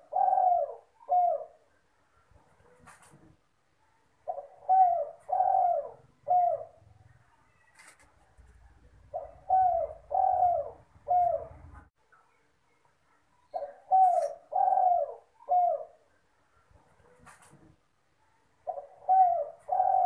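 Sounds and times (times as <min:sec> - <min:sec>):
dove cooing: 0:00.0 - 0:01.7, 0:04.2 - 0:11.9, 0:13.5 - 0:16.1, 0:18.6 - 0:20.0.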